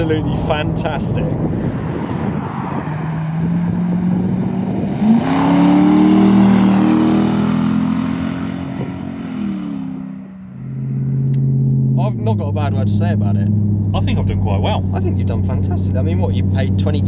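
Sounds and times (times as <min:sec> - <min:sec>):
car engine accelerating past: 0:01.4 - 0:11.6.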